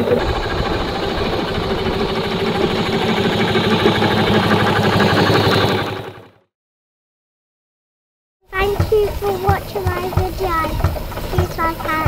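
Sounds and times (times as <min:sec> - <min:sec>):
steam traction engine running: 0:00.0 - 0:06.4, 0:08.5 - 0:12.0.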